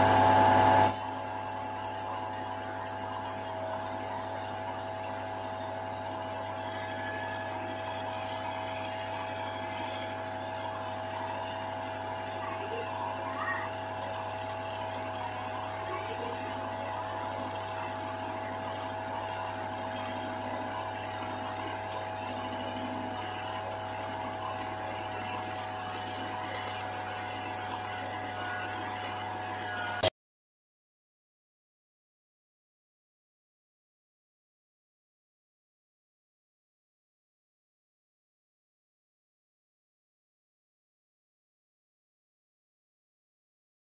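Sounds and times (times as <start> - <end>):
mixer grinder motor running: 0.0 - 30.1.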